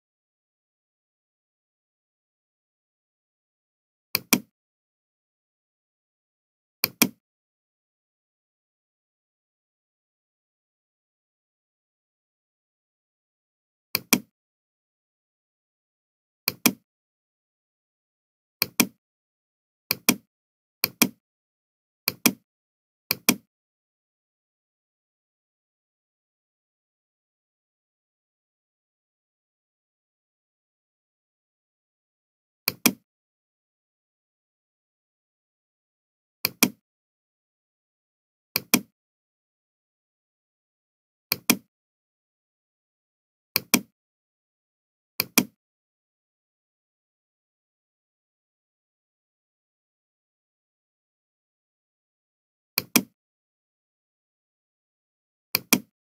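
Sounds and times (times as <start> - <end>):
computer mouse clicking: 4.2 - 4.5, 6.8 - 7.2, 14.0 - 14.3, 16.5 - 16.8, 18.6 - 19.0, 19.9 - 20.2, 20.8 - 21.2, 22.1 - 22.4, 23.1 - 23.4, 32.7 - 33.0, 36.5 - 36.8, 38.6 - 38.9, 41.3 - 41.7, 43.6 - 43.9, 45.2 - 45.6, 52.8 - 53.1, 55.6 - 55.9.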